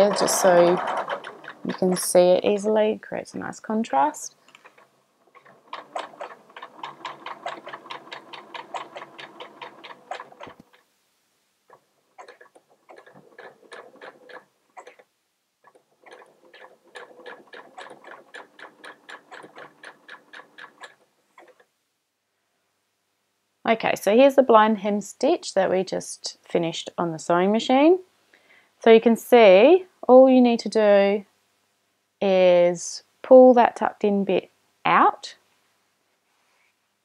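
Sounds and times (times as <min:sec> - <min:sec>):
sewing machine stitching: 0:00.0 - 0:02.4, 0:04.5 - 0:10.9, 0:11.7 - 0:21.7.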